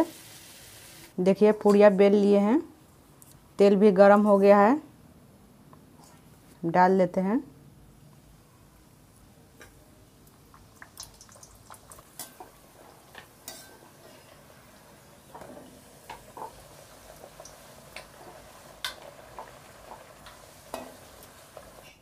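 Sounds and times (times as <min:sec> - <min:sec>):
faint frying sizzle: 0:00.0 - 0:01.2, 0:08.8 - 0:22.0
metal spoon scraping pan: 0:12.2 - 0:14.4.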